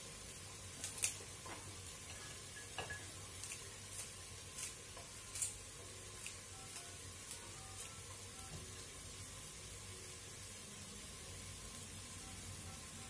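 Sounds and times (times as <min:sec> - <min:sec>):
vegetables sizzling in oil: 0:00.0 - 0:13.0
scissors snipping green beans: 0:00.8 - 0:01.2, 0:03.4 - 0:05.6, 0:06.2 - 0:06.4.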